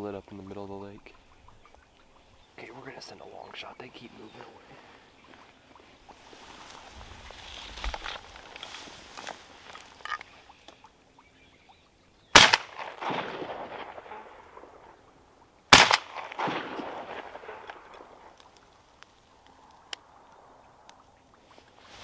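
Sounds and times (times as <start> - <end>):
shotgun shots with echo: 12.3 - 14.8, 15.7 - 18.3.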